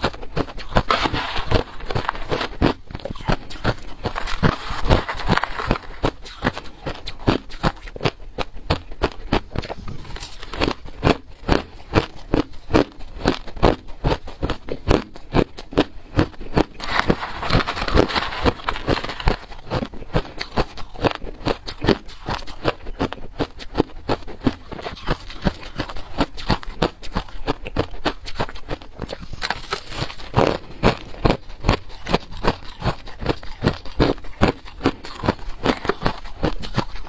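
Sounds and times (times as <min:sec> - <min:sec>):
ice crunching between teeth: 0:00.0 - 0:37.0.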